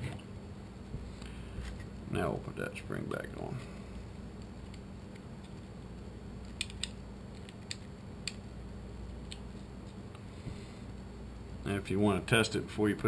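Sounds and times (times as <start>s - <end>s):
steady low hum: 0.0s - 13.0s
small plastic parts clicking: 6.4s - 8.4s.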